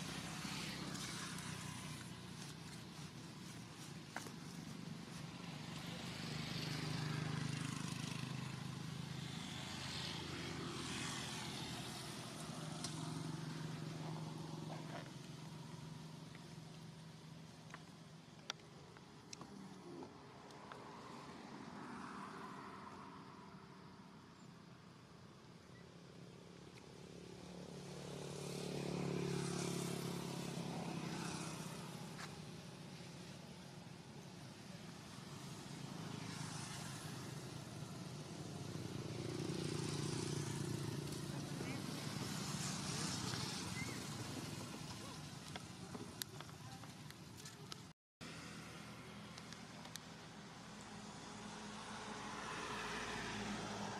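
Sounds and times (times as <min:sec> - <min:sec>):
vehicle engine passing by: 0:00.0 - 0:03.6, 0:04.2 - 0:16.3, 0:27.0 - 0:47.6, 0:48.2 - 0:53.9.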